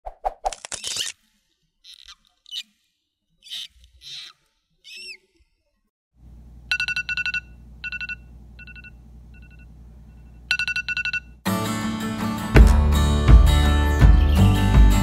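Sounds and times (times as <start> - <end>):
phone alarm beeping: 6.7 - 11.4
loud guitar music: 11.5 - 15.0.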